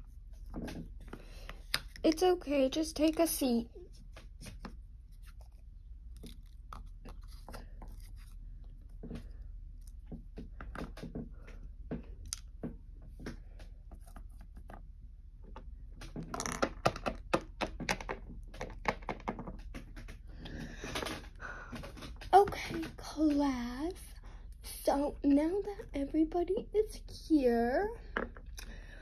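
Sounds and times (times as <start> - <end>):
plastic figurines tapping on wood: 16.0 - 23.5.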